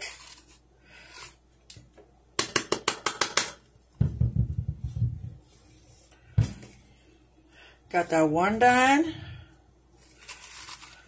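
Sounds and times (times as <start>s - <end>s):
metal spoon scraping squash: 0.0s - 1.4s, 10.0s - 11.0s.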